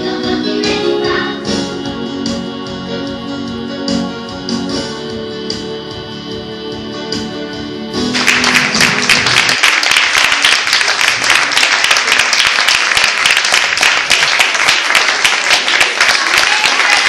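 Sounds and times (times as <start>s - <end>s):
music: 0.0s - 10.8s
audience applauding loudly: 8.1s - 17.0s.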